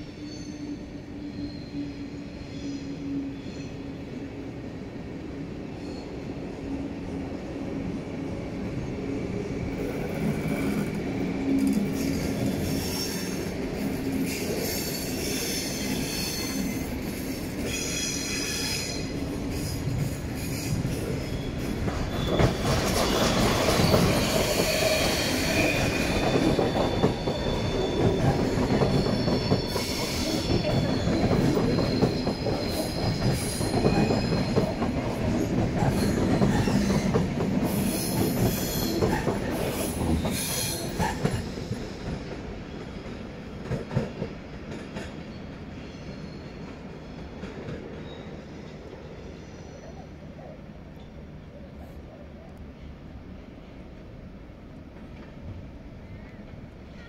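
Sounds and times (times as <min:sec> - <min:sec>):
train wheels squealing: 0:00.0 - 0:04.1, 0:05.8 - 0:06.3, 0:09.8 - 0:43.3, 0:43.9 - 0:51.2.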